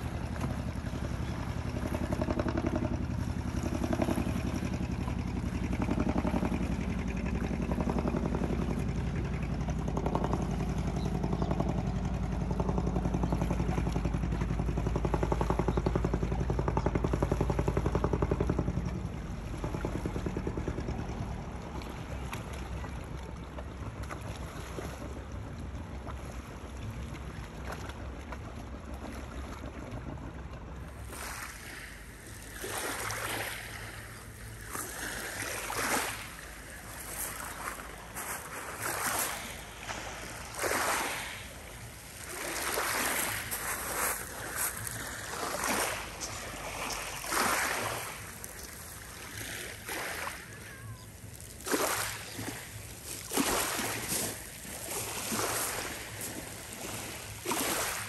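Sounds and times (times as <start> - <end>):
small waves on pebble shore: 0.0 - 18.9, 30.9 - 58.0.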